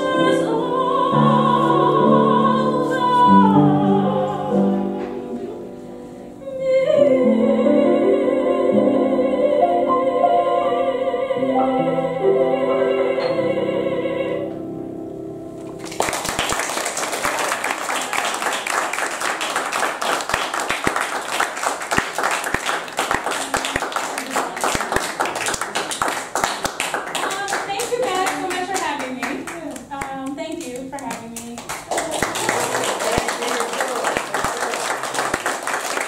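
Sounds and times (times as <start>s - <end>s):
soprano singing with vibrato: 0.0s - 5.4s, 6.3s - 14.6s
audience applauding: 15.8s - 29.6s, 31.5s - 36.0s.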